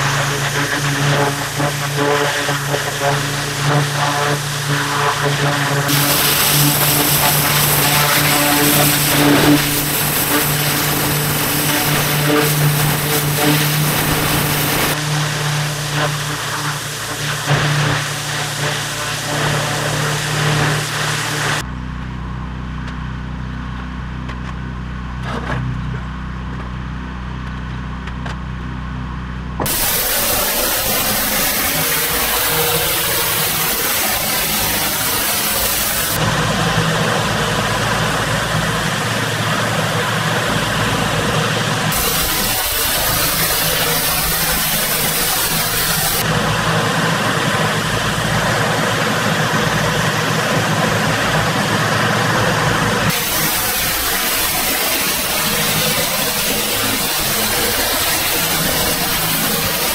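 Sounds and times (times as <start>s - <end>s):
high-pressure water spray hissing: 0.0s - 21.6s, 29.6s - 36.3s, 37.7s - 50.4s, 53.1s - 59.9s
pressure washer engine running: 0.0s - 21.7s, 29.6s - 59.9s.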